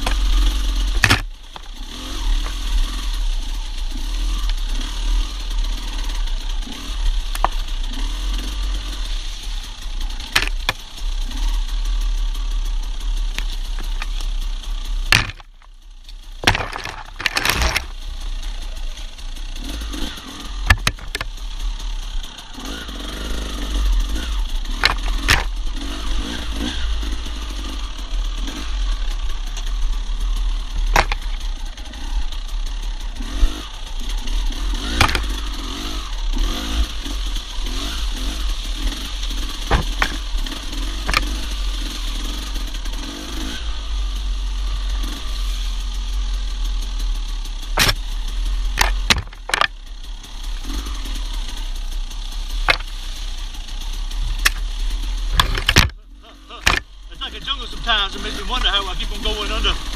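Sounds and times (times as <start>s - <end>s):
dirt bike engine revving: 0.0s - 59.9s
sharp knocks and slaps: 15.1s - 15.6s, 34.8s - 35.4s, 39.6s - 41.4s, 47.8s - 48.0s, 52.7s - 52.9s.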